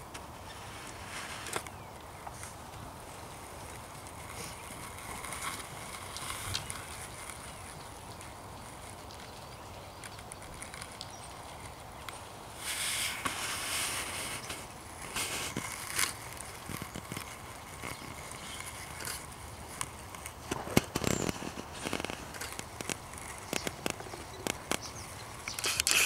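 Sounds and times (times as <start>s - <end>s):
outdoor background noise: 0.0s - 26.0s.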